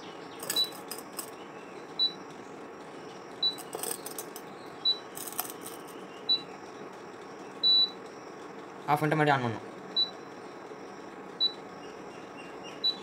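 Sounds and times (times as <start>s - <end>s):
cooktop control panel beeping: 0.4s - 1.3s, 3.4s - 6.5s, 7.6s - 8.0s.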